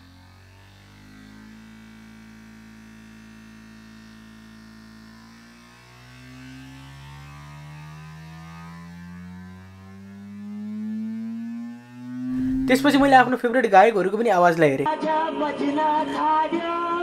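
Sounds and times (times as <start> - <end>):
low test tone hum: 6.2 - 13.4.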